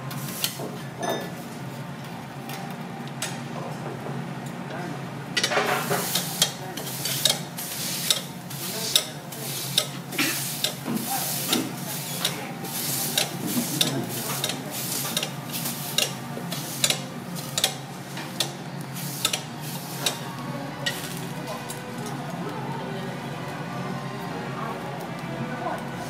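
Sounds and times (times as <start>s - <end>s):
prawn sizzling on a griddle: 5.7s - 16.8s.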